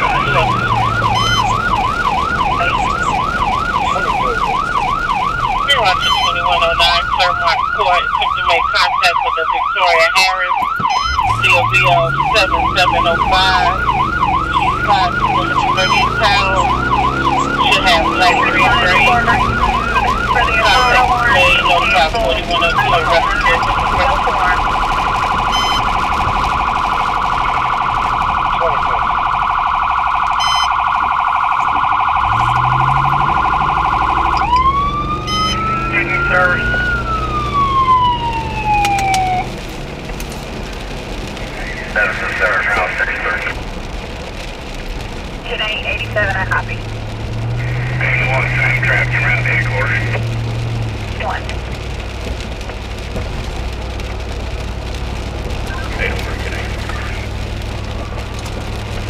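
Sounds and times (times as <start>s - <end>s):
vehicle engine accelerating: 0.0s - 5.8s, 11.0s - 29.6s, 31.1s - 59.0s
electronic siren: 0.0s - 39.5s, 47.5s - 50.3s.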